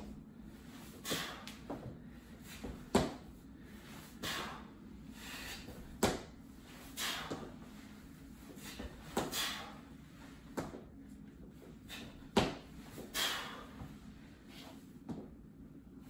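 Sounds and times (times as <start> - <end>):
breathy exhalations: 0.9 - 2.6, 8.6 - 9.9, 13.0 - 13.8.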